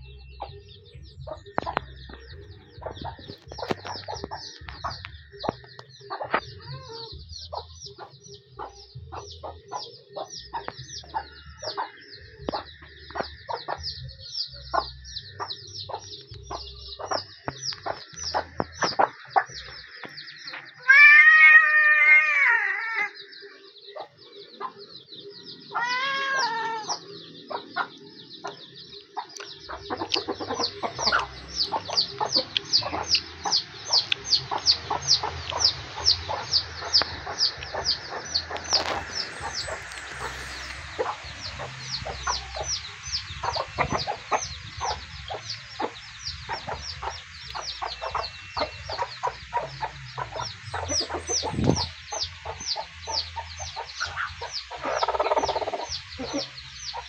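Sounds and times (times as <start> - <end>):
chicks peeping: 0.0 - 21.6, 23.0 - 57.0
hens clucking: 1.2 - 21.8, 25.6 - 57.0
cat meowing: 6.5 - 7.1, 20.8 - 23.1, 25.7 - 27.0.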